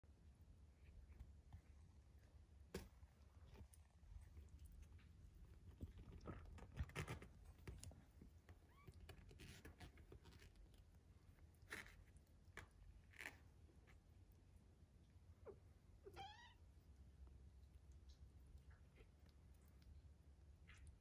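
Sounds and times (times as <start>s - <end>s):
kittens rustling on blanket: 0.7s - 14.5s.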